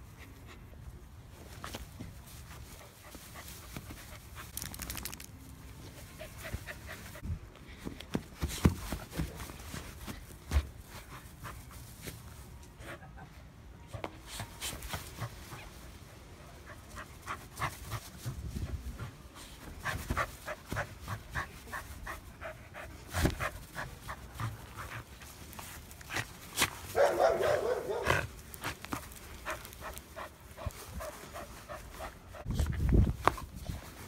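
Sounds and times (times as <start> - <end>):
dog panting: 19.0 - 26.4.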